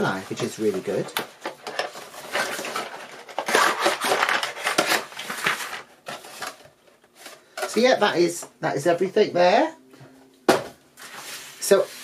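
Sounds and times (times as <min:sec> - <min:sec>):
plastic pieces rattling: 0:01.4 - 0:06.5.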